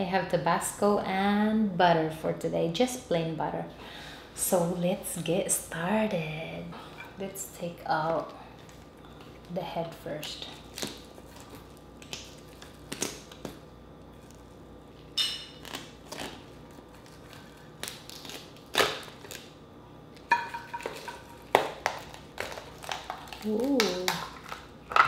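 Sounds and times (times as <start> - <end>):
crab shell cracking: 10.2 - 25.0.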